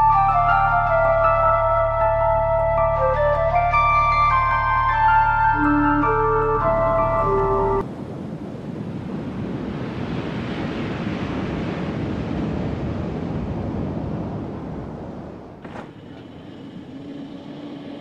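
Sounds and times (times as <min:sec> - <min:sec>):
waves breaking on beach: 0:07.8 - 0:15.0.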